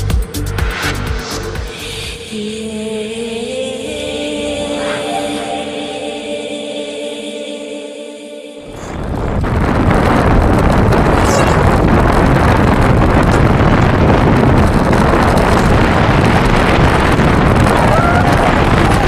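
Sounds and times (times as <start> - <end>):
wind buffeting microphone: 8.7 - 19.0.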